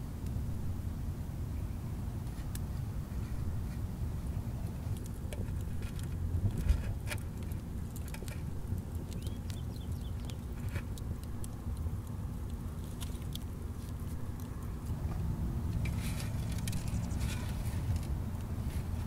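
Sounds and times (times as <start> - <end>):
low steady rumble: 0.0 - 19.0
stick scratching and tapping: 4.7 - 18.9.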